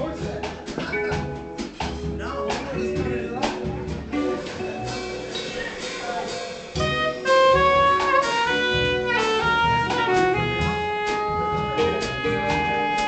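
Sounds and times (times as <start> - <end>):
drums: 0.0 - 13.0
plucked upright bass: 0.0 - 13.0
soprano saxophone melody: 6.8 - 13.0.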